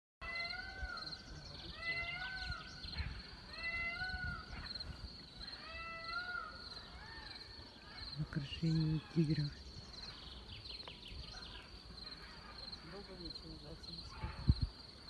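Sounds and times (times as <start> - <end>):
animal calls: 0.2 - 10.3
insects trilling: 0.2 - 15.0.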